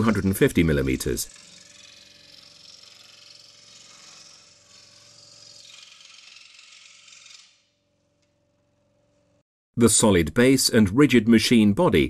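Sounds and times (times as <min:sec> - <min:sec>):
scroll saw buzzing: 0:00.0 - 0:08.3.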